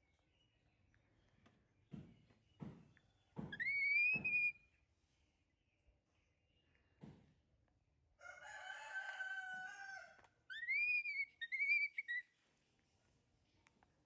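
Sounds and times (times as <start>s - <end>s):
baby macaque calling: 3.5s - 4.5s, 10.5s - 12.2s
rooster crowing: 8.2s - 10.2s.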